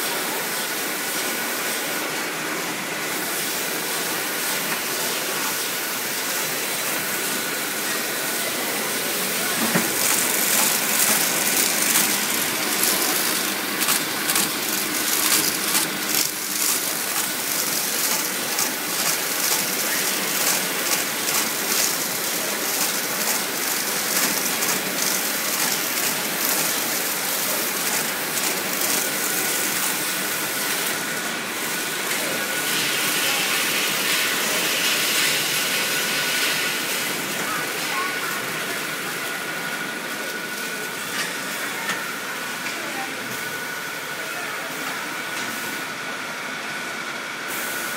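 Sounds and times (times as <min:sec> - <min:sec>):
machine clatter: 0:09.4 - 0:30.9
rapid clicking: 0:09.8 - 0:19.7.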